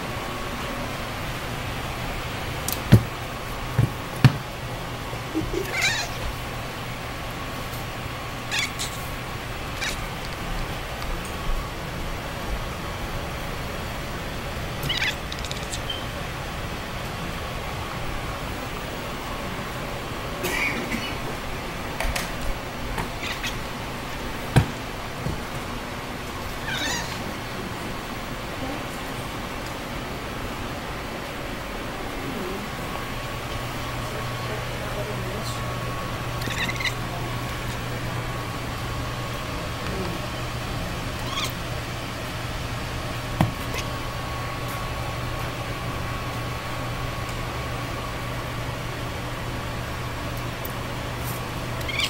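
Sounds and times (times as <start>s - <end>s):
steady low hum: 0.0s - 52.0s
cat meowing: 5.4s - 6.3s, 8.5s - 10.3s, 14.8s - 15.9s, 23.2s - 23.7s, 26.5s - 27.4s, 36.4s - 37.1s, 41.2s - 41.6s.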